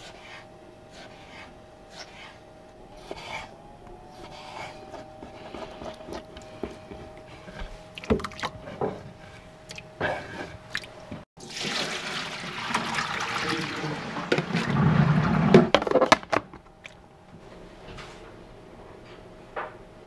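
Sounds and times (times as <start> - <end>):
water splashing into container: 10.7 - 15.5.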